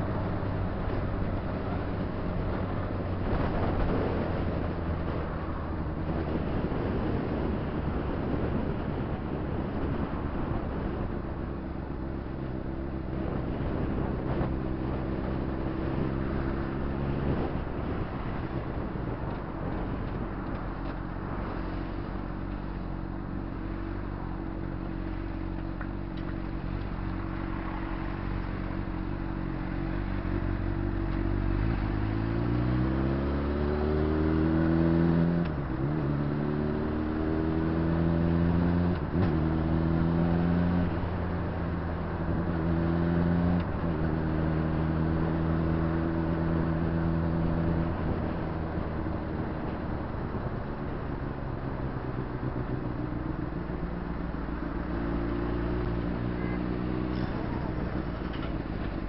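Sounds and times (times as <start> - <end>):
wind and road noise: 0.0 - 59.0
motorcycle engine: 36.0 - 59.0.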